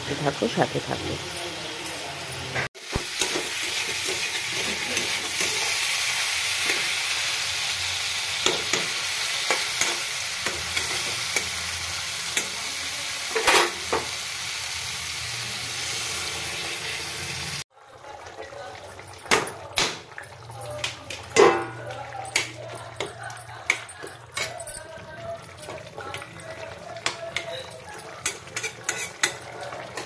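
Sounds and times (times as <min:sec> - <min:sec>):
curry sizzling in pan: 0:00.0 - 0:30.0
metal spatula scraping pan: 0:27.4 - 0:30.0.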